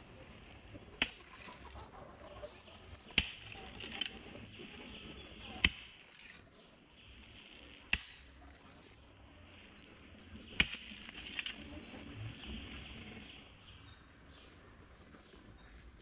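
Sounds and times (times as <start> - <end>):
hoe blade striking soil: 3.1 - 4.1, 5.6 - 6.4, 7.9 - 8.4, 10.6 - 11.5.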